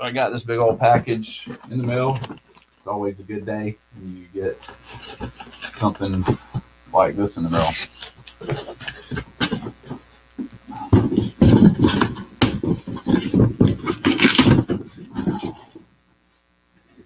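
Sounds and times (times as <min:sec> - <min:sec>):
cardboard box scraping and rustling: 0:04.6 - 0:06.6, 0:07.4 - 0:10.1, 0:10.7 - 0:15.8.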